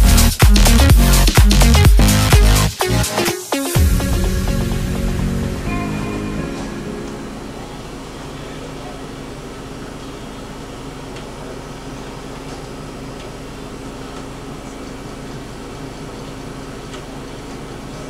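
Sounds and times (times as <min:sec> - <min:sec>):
air conditioning hum and hiss: 0:05.6 - 0:18.0.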